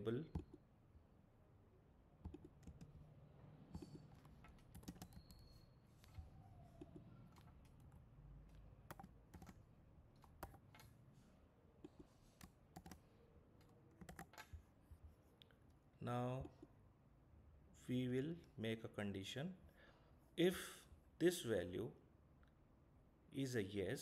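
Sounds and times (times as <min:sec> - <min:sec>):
computer keyboard typing: 0:02.3 - 0:03.0, 0:03.7 - 0:06.2, 0:06.8 - 0:09.6, 0:10.2 - 0:10.9, 0:12.4 - 0:13.0, 0:14.0 - 0:14.6.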